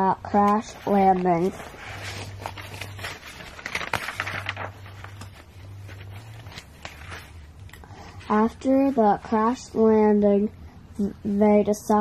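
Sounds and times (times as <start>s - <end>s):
paper rustling and crinkling: 0.4s - 9.6s.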